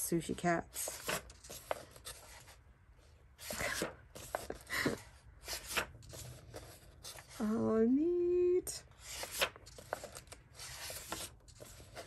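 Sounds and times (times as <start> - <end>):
paper pages rustling: 0.7 - 2.6, 3.4 - 7.6, 9.0 - 12.0.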